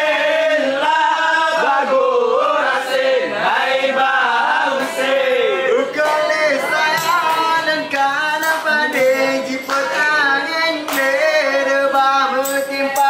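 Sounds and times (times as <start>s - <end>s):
people singing long held notes: 0.0s - 13.0s
sharp drum beats: 6.0s - 13.0s.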